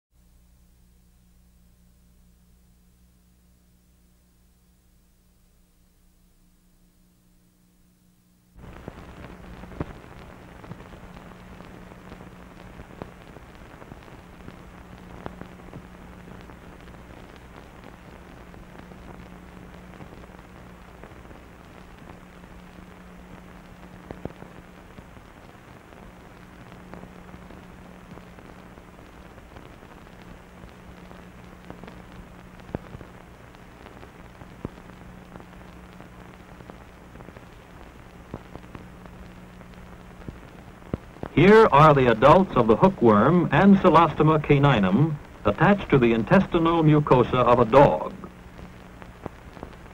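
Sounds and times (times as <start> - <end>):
film soundtrack hiss: 0.2 - 49.9
clicks and pops: 9.2 - 10.0
low hum: 35.2 - 49.9.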